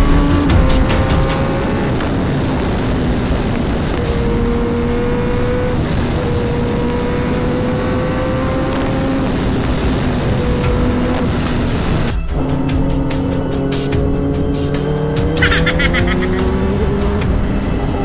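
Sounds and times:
heavy wind noise: 0:00.0 - 0:12.4
motorcycle engine cruising: 0:00.0 - 0:18.0.

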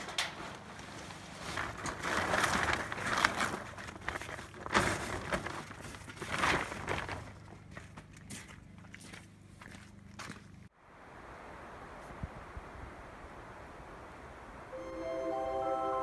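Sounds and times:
plastic tarp crinkling: 0:00.0 - 0:07.8.

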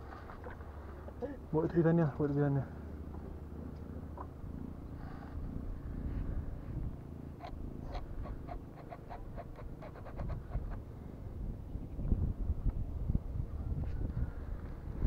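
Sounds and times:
low rumble: 0:02.2 - 0:08.6.

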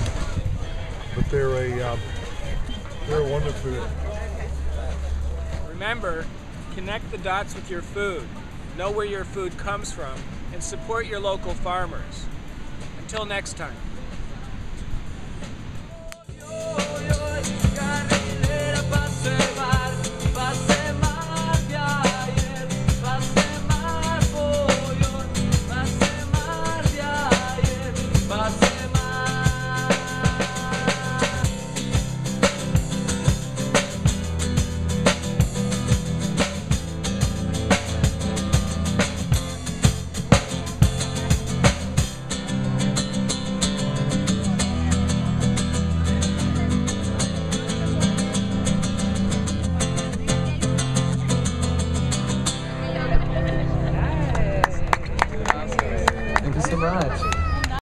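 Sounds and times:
drum kit: 0:15.4 - 0:52.6
nylon-string guitar: 0:15.7 - 0:55.0
bass line: 0:16.2 - 0:55.6.

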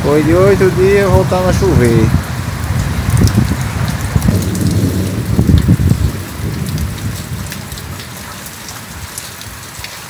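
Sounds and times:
rain falling: 0:00.0 - 0:10.0
loud low rumble: 0:01.2 - 0:07.5.

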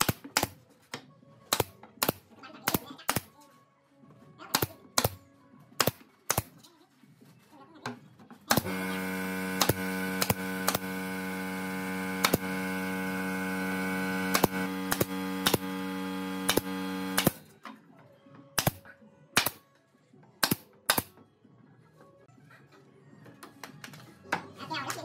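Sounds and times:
nail gun firing: 0:00.0 - 0:00.5, 0:01.5 - 0:03.3, 0:05.8 - 0:06.5, 0:08.5 - 0:13.4, 0:14.0 - 0:17.4, 0:18.6 - 0:18.8, 0:19.4 - 0:19.6, 0:20.4 - 0:21.1
steady hum: 0:08.5 - 0:17.4.

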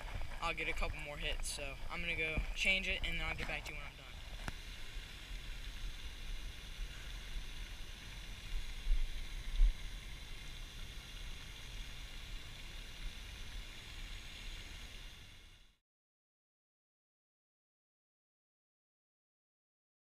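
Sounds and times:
wind rumbling on microphone: 0:00.0 - 0:04.6
steady high hiss: 0:00.0 - 0:15.8.

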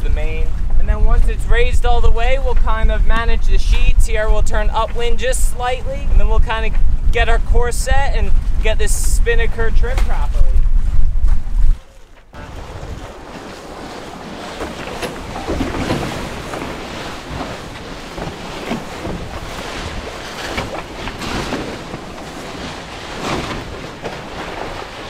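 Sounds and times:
waves washing along hull: 0:00.0 - 0:25.0
wind across microphone: 0:00.0 - 0:25.0
rope hauling swishing and rustling: 0:09.9 - 0:25.0.

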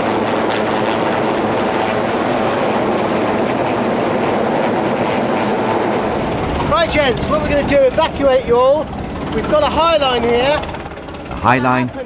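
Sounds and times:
helicopter hovering overhead: 0:00.0 - 0:12.0.

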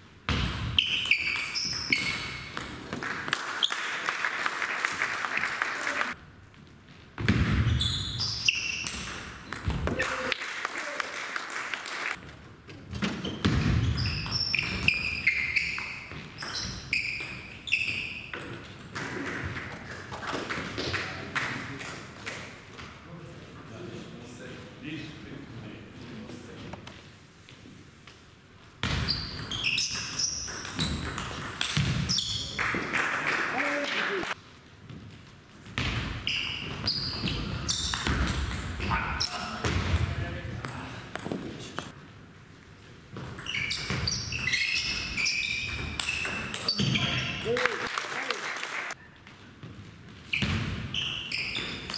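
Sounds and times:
shoes squeaking on floor: 0:00.8 - 0:02.6, 0:06.8 - 0:09.6, 0:12.9 - 0:18.6, 0:28.8 - 0:32.6, 0:36.1 - 0:38.4, 0:43.2 - 0:47.5, 0:49.1 - 0:51.9.

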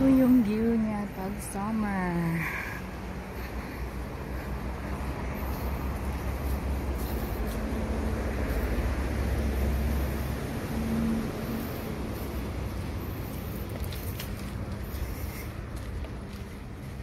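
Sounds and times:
low outdoor rumble with hiss: 0:00.0 - 0:17.0.

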